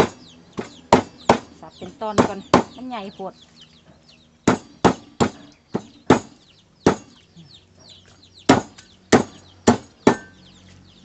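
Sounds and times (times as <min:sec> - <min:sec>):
cleaver chopping fish on wood: 0:00.0 - 0:02.8, 0:04.4 - 0:07.2, 0:08.5 - 0:10.4.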